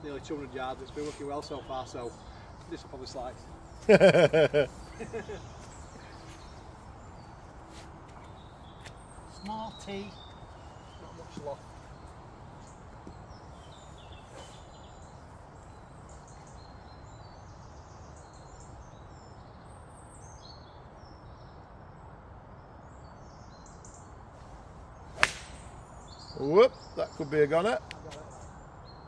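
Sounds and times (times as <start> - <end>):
birds chirping: 0.0 - 29.0
low outdoor background noise: 0.0 - 29.0
golf club striking ball: 25.2 - 25.8.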